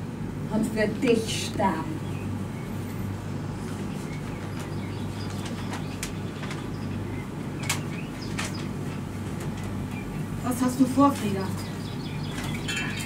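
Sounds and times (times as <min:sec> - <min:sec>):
low room hum: 0:00.0 - 0:13.0
faint clicks and rustles: 0:03.6 - 0:10.4.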